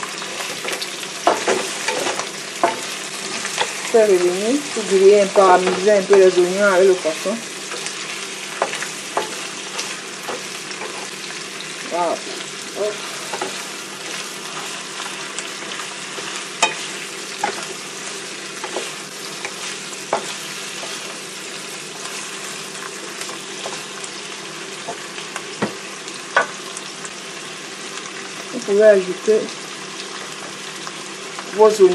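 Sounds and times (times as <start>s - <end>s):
food sizzling in hot oil: 0.0s - 31.9s
wooden spatula knocking on pan: 25.6s - 25.8s.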